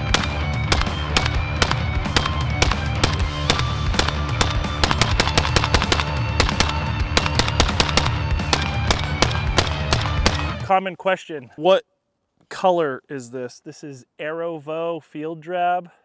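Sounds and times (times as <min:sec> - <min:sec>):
background music: 0:00.0 - 0:10.9
suppressed rifle shots: 0:00.1 - 0:10.6.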